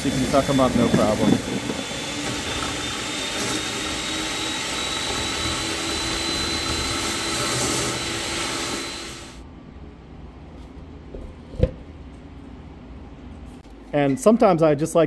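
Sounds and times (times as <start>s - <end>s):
vacuum sucking chips and coolant: 0.0s - 9.4s.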